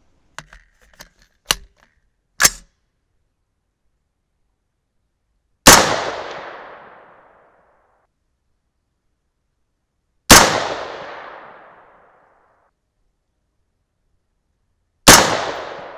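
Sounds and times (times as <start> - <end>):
rifle handling clicks and clacks: 0.3 - 2.7
rifle gunshot with echo: 5.6 - 7.3, 10.3 - 12.0, 15.1 - 15.9.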